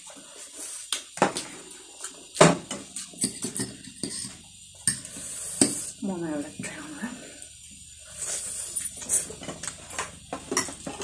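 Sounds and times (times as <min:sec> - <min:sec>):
utensils clicking on plates: 0:02.9 - 0:05.8.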